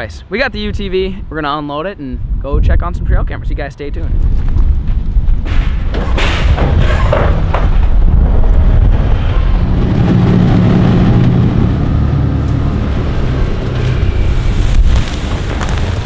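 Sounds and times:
wind rumble on microphone: 0.0s - 16.0s
metal ramp gate clanking: 5.4s - 8.9s
utility vehicle engine running: 7.4s - 16.0s.

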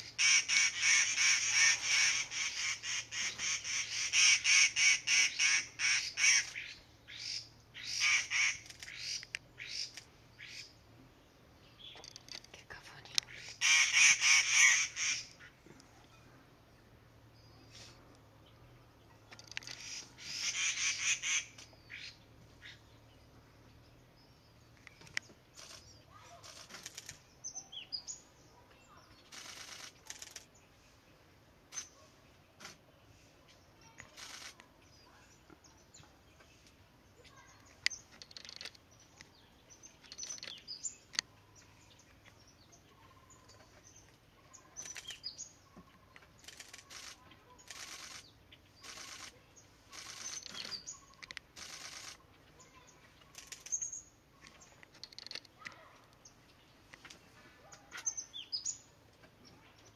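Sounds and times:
harsh rasping bird calls: 0.0s - 10.8s, 11.8s - 15.6s, 19.2s - 22.9s, 37.2s - 56.2s.

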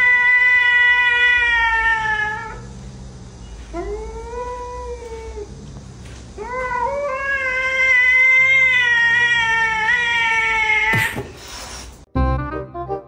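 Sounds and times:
cat yowling: 0.0s - 2.6s, 6.4s - 11.2s
cat hissing: 6.8s - 12.0s.

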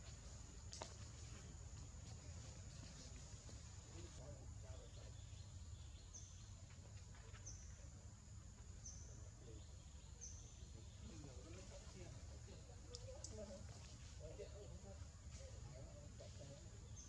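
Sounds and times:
bird chirping: 4.0s - 7.9s, 8.8s - 11.8s.

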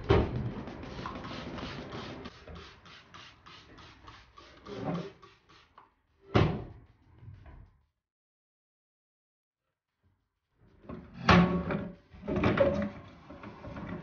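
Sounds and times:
spray bottle squirting: 0.8s - 5.9s.

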